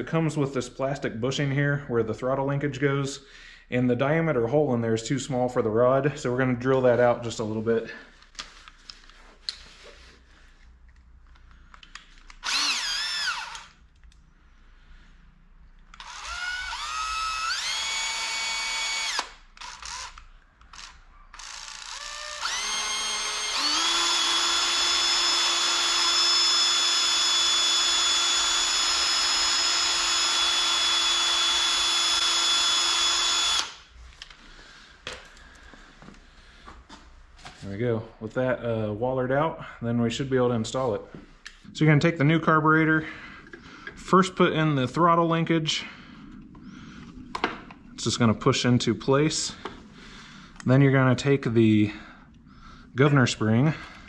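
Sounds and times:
electric drill whining: 12.3s - 13.8s, 15.9s - 33.9s.

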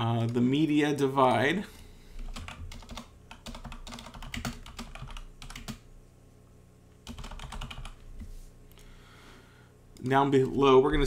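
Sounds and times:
keyboard typing clicks: 2.3s - 5.8s, 7.0s - 8.0s.

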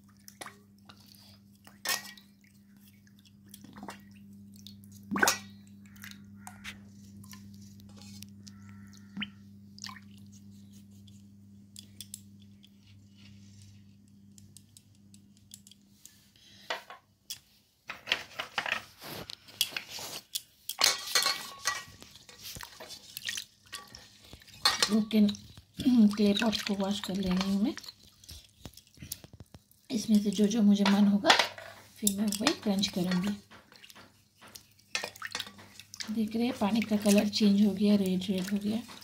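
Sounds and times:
water sloshing and dripping: 0.0s - 13.3s, 19.7s - 39.0s
steady low hum: 0.0s - 17.0s
clay clinking against metal basin: 19.6s - 22.9s, 23.7s - 28.0s, 30.0s - 39.0s.

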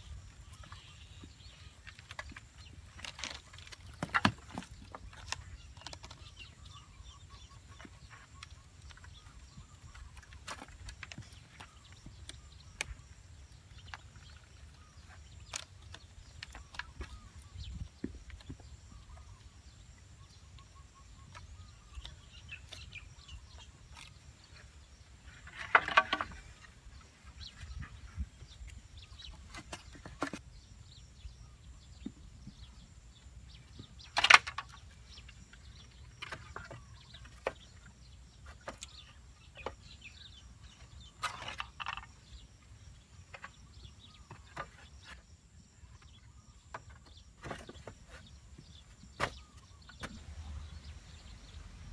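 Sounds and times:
wooden poles knocking: 0.6s - 6.4s, 25.3s - 26.8s, 33.7s - 39.9s.

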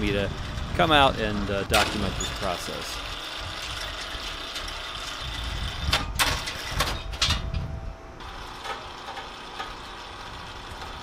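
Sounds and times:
steady engine rumble: 0.0s - 11.0s
metal clanks and scrapes: 5.9s - 7.7s, 8.5s - 11.0s.

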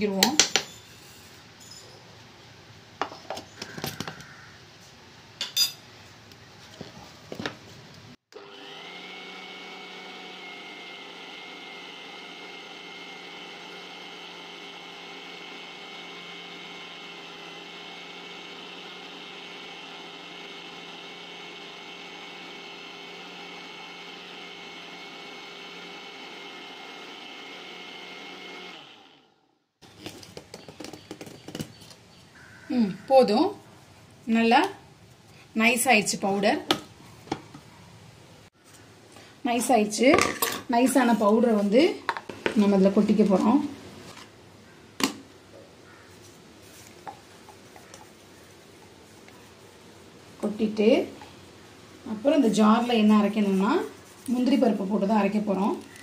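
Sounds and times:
mixer grinder running: 8.3s - 29.5s, 52.0s - 56.0s.

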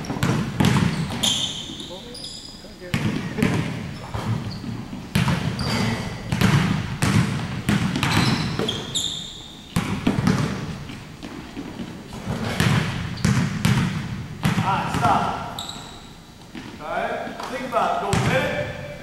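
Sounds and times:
basketballs bouncing on hardwood floor: 0.0s - 2.2s, 2.8s - 18.8s
sneaker squeaks: 0.0s - 6.6s, 7.7s - 10.6s, 11.2s - 13.8s, 14.6s - 17.6s.

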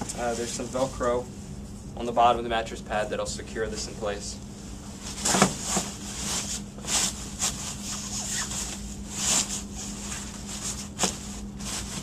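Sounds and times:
mattress pad rustling: 5.0s - 12.0s.

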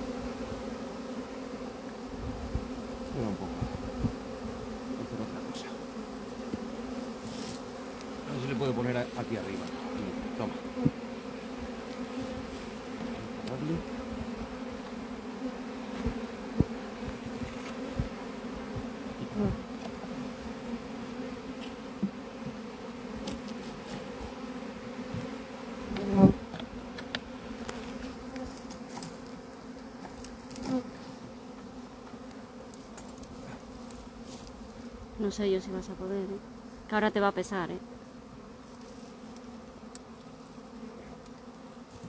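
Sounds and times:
bee swarm buzzing: 0.0s - 42.0s.

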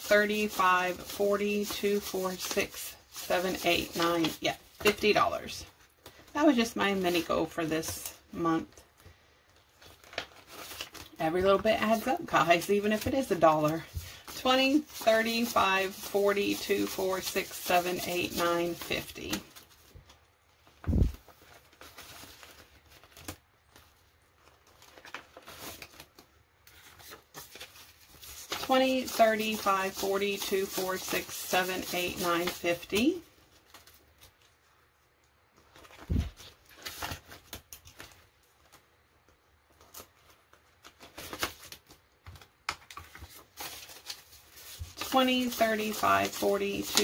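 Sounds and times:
banknotes rustling: 0.0s - 34.7s, 35.6s - 47.0s
plastic crinkling: 18.2s - 28.8s, 35.6s - 47.0s.

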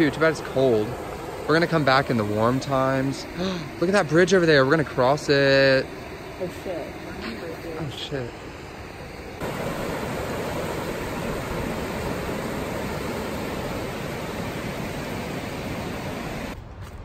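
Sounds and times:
creek water rushing over rapids: 9.4s - 16.6s.

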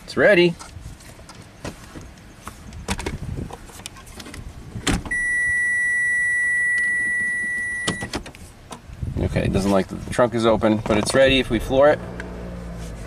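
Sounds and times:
car warning chime tone: 5.1s - 8.1s.

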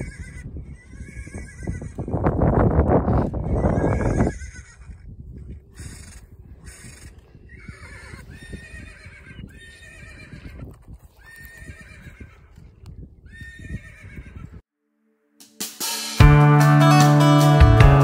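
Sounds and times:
horse whinnying: 6.0s - 12.6s, 13.3s - 14.6s.

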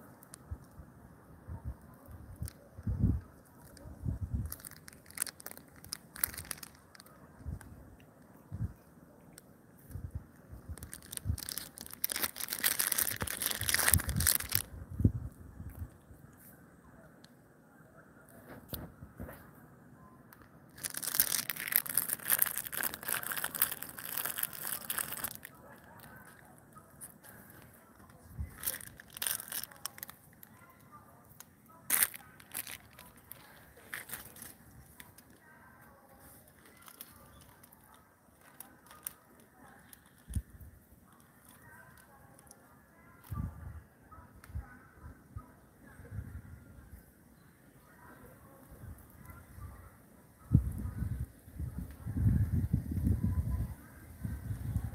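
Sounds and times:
plastic packet crinkling: 4.4s - 7.1s, 10.8s - 14.7s, 20.7s - 26.5s, 28.1s - 30.6s, 31.4s - 35.4s, 36.5s - 40.5s.

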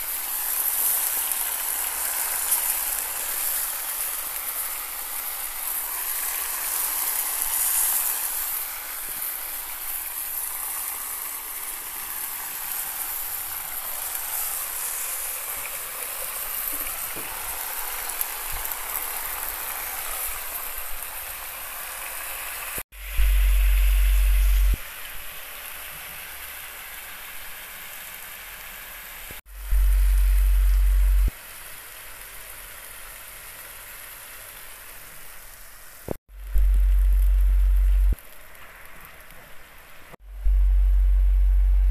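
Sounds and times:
meat and onions sizzling: 0.0s - 41.4s
loud deep hum: 23.0s - 24.8s, 29.5s - 31.3s, 36.4s - 38.2s, 40.2s - 41.9s.

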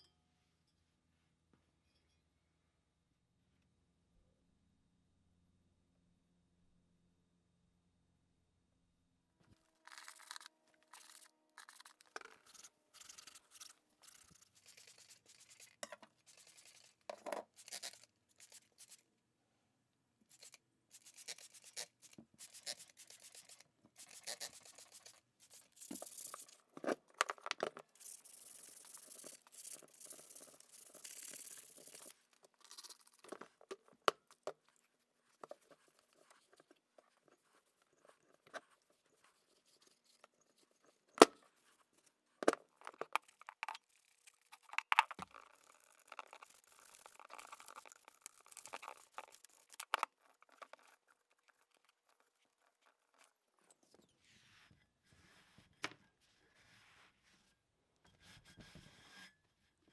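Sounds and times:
scrubbing and rubbing: 20.4s - 27.1s, 27.8s - 33.7s.

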